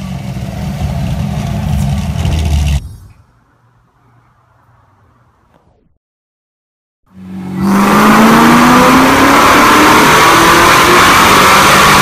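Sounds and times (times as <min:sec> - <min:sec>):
car engine revving at full throttle: 0:07.2 - 0:12.0.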